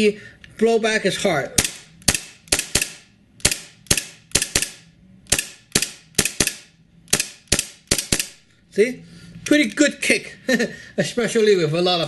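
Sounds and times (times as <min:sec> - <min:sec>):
airsoft pistol shots: 0:01.6 - 0:08.4.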